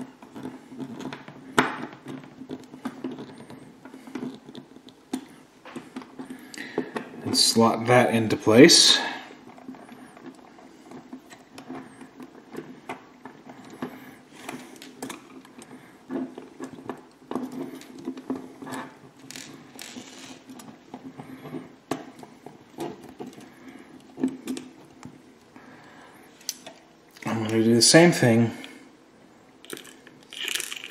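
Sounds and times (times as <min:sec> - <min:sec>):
plastic parts clicking and scraping: 0:00.0 - 0:07.5, 0:09.5 - 0:25.5.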